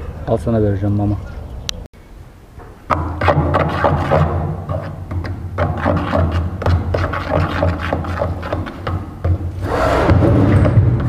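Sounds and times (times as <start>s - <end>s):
fork scraping plastic bowl: 3.2s - 9.0s.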